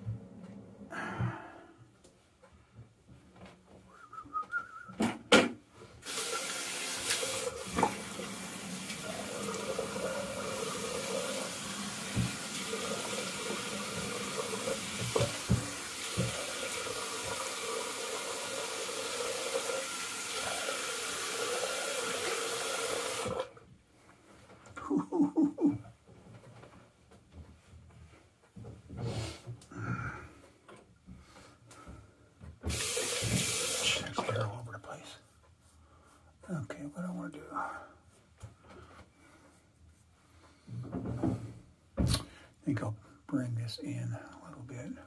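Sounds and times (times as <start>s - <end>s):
tap water running into basin: 6.0s - 23.6s, 32.6s - 34.4s.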